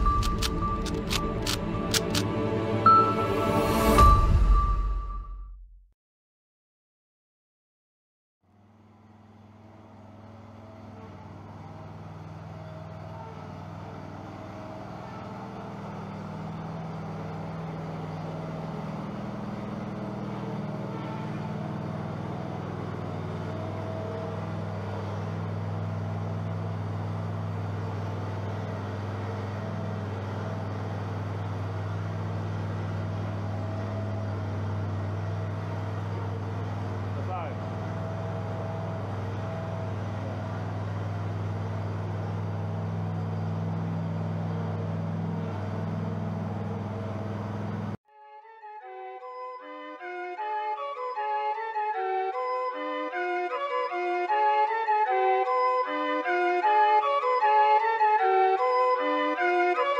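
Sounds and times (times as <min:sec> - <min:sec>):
lawn mower engine running: 0:08.6 - 0:48.0.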